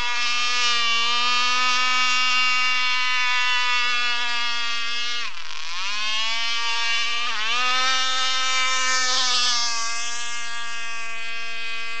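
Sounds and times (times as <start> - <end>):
model boat engine whining: 0.0 - 12.0.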